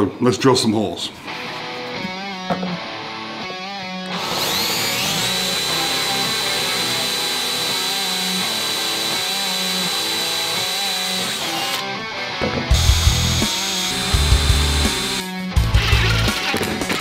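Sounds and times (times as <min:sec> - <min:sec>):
cordless drill drilling metal: 0:04.0 - 0:11.9, 0:12.7 - 0:15.2.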